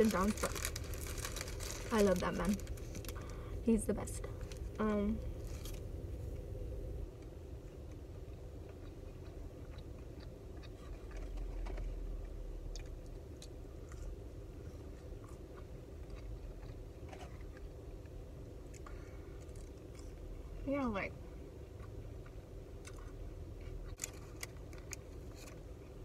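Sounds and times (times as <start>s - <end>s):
small clicks and crackles: 0.0s - 3.3s, 23.8s - 25.7s
steady low hum: 0.0s - 26.0s
person chewing fries: 7.6s - 20.6s, 21.6s - 26.0s.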